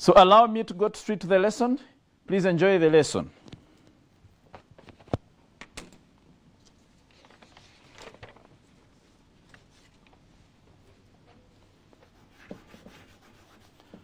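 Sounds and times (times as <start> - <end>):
paper sheets rustling: 6.9 - 10.3.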